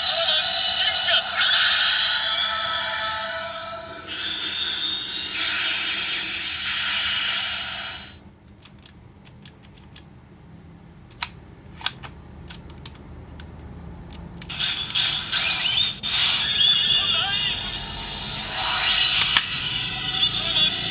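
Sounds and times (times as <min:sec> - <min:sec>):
toy electronic sound effect: 0:00.0 - 0:08.2, 0:14.5 - 0:20.9
plastic toy clicks: 0:08.5 - 0:10.1, 0:19.2 - 0:19.5.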